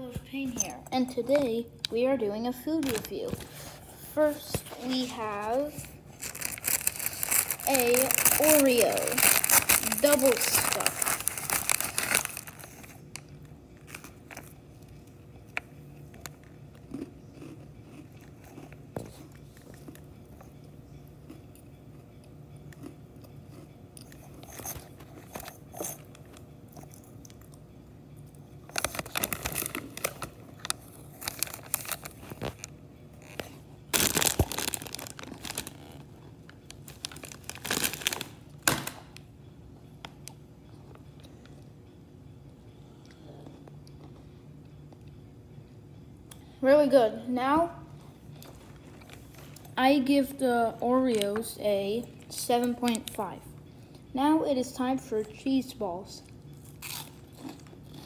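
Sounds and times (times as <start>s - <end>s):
child chewing cookies: 0.9s - 38.6s, 39.8s - 45.6s, 47.9s - 49.8s, 56.2s - 58.0s
package crinkling: 5.7s - 14.6s, 28.7s - 39.2s.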